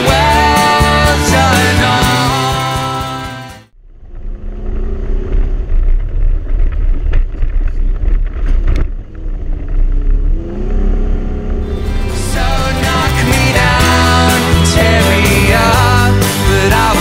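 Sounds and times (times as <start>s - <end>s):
soundtrack music: 0.0s - 3.7s, 11.6s - 17.0s
pickup engine rumbling: 0.0s - 17.0s.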